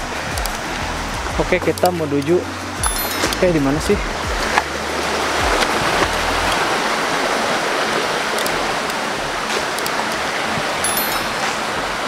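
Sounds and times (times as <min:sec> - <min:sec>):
running water rushing: 0:00.0 - 0:12.0.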